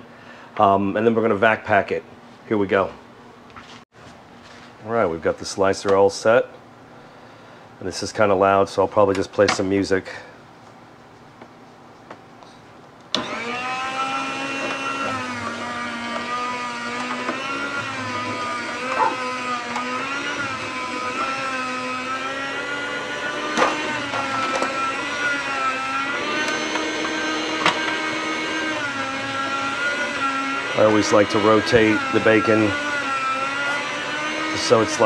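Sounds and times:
meat slicer motor whine: 0:13.1 - 0:35.0.

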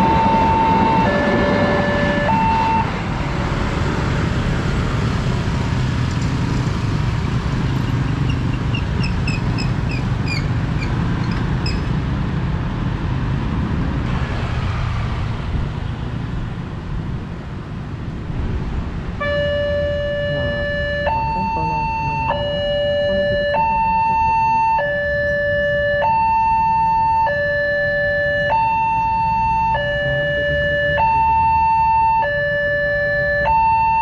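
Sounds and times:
electronic crossing warning alarm: 0:00.0 - 0:02.9, 0:19.2 - 0:34.0
road traffic and motorcycles: 0:00.0 - 0:34.0.

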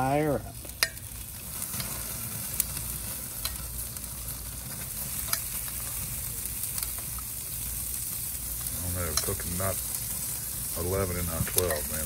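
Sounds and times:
sauce sizzling on a grill: 0:00.0 - 0:12.0.

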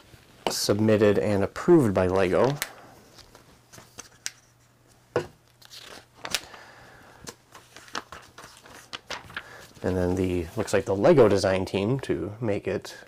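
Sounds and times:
paper pages rustling: 0:02.0 - 0:06.6, 0:07.2 - 0:11.7.

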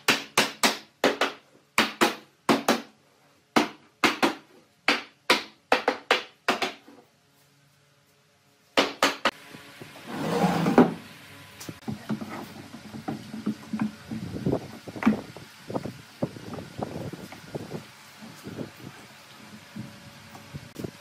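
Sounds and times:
hammer striking wood: 0:08.8 - 0:09.4
scraping noise: 0:10.0 - 0:10.9.

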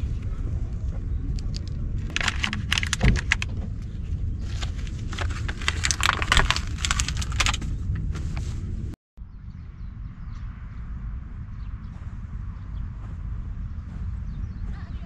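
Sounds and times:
steady low rumble: 0:00.0 - 0:15.0
small metal parts clinking: 0:01.4 - 0:03.5, 0:04.5 - 0:07.6
tarp rustling and crinkling: 0:02.1 - 0:08.6.

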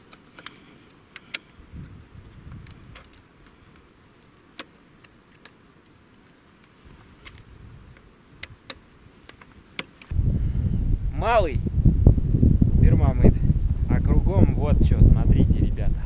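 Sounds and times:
high insect chirp: 0:00.0 - 0:10.1
sharp clicks: 0:00.0 - 0:10.2
soft low rumbles: 0:10.1 - 0:16.0.

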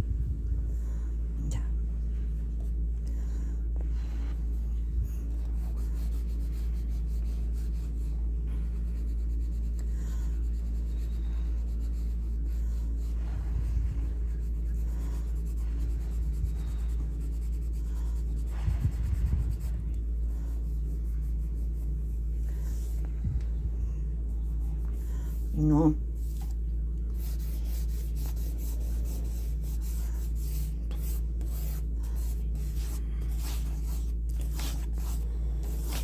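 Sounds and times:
steady low hum: 0:00.0 - 0:36.0
pencil scratching on paper: 0:05.3 - 0:22.0, 0:27.1 - 0:36.0.

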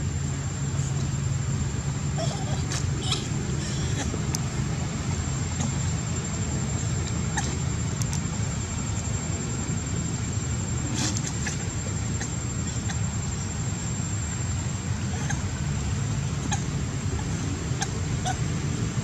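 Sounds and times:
low outdoor rumble: 0:00.0 - 0:19.0
faint clicks: 0:08.0 - 0:08.2.

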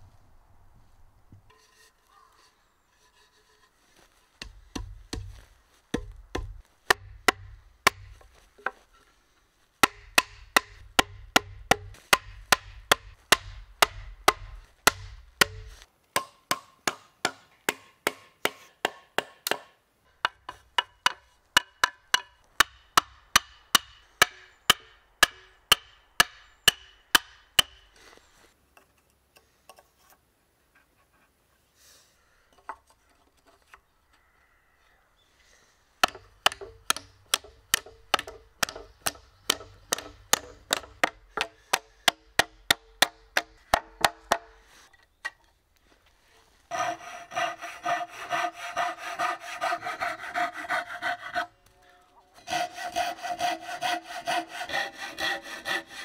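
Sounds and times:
hammer tapping wooden wedge: 0:04.4 - 0:08.8, 0:09.8 - 0:27.8, 0:36.0 - 0:44.6.

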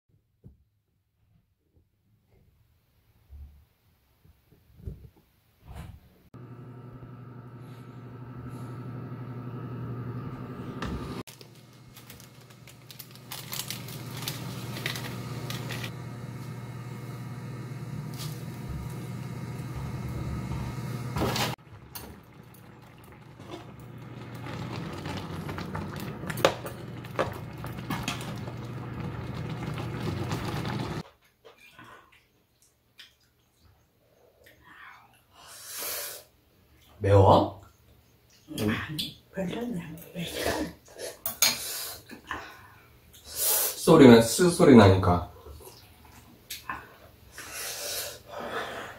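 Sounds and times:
broth simmering: 0:06.4 - 0:31.0
induction hob humming: 0:06.4 - 0:31.0.

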